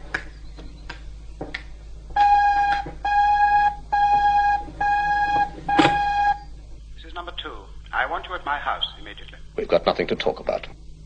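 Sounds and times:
telephone ringing: 2.2s - 6.4s.

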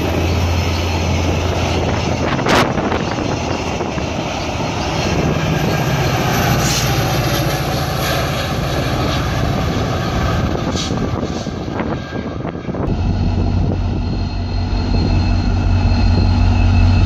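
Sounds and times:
wind buffeting microphone: 0.0s - 7.4s, 8.4s - 17.0s
diesel locomotive drone: 0.0s - 17.0s
train coaches rumbling: 0.0s - 17.0s.

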